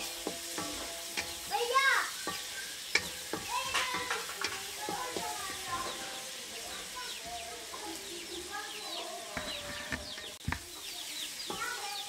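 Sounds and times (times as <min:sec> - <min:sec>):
metal spatula scraping a wok: 0:00.0 - 0:07.0
light sizzling in oil: 0:00.0 - 0:12.0.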